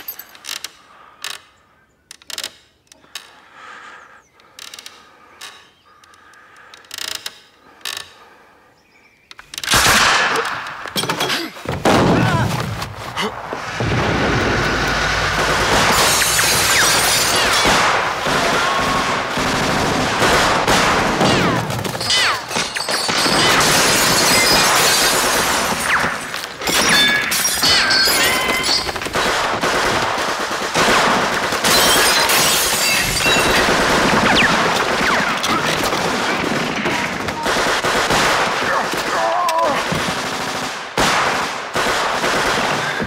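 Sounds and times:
sharp impacts and shattering: 13.6s - 18.8s, 20.3s - 29.3s, 31.6s - 37.2s
automatic and rifle gunfire: 15.0s - 26.8s, 28.3s - 39.1s, 39.9s - 43.0s.

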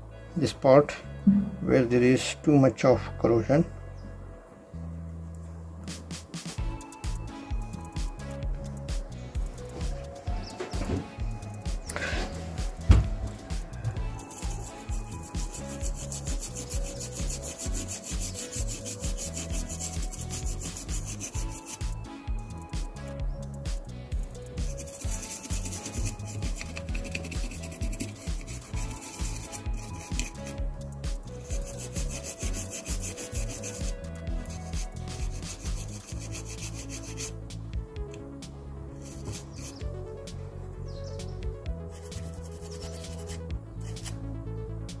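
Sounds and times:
background music with bass: 0.0s - 45.0s
toothbrush scrubbing circuit board: 14.1s - 22.0s, 24.5s - 30.7s, 31.3s - 37.3s, 39.0s - 39.8s, 41.9s - 44.2s.

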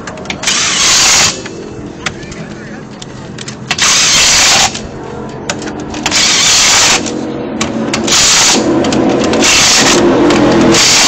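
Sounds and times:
cordless power tool driving lug nuts: 3.5s - 4.8s, 6.0s - 11.0s.

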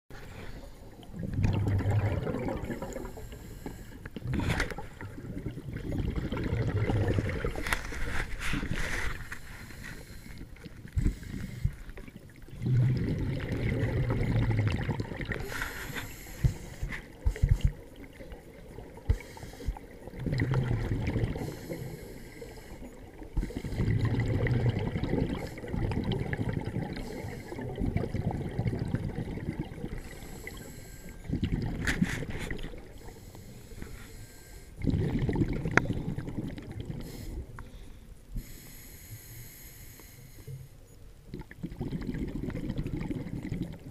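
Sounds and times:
exhaled bubbles rushing underwater: 0.9s - 7.9s, 10.5s - 15.6s, 16.4s - 33.2s, 34.8s - 37.3s, 41.3s - 43.9s
regulator inhalation hiss: 15.4s - 17.6s, 19.1s - 19.8s, 21.4s - 23.8s, 38.4s - 40.7s.

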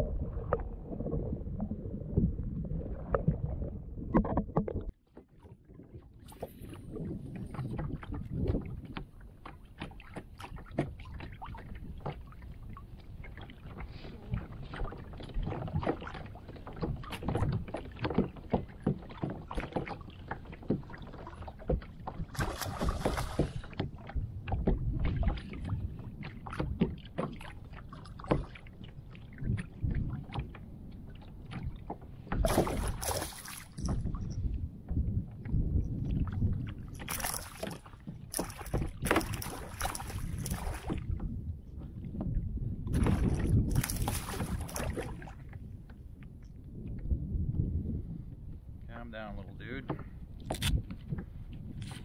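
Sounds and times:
wind on microphone: 0.0s - 5.0s, 5.6s - 52.0s
water lapping against kayak hull: 0.0s - 52.0s
fish thrashing and splashing: 21.7s - 23.8s, 32.4s - 34.0s, 36.9s - 41.1s, 43.0s - 45.4s.

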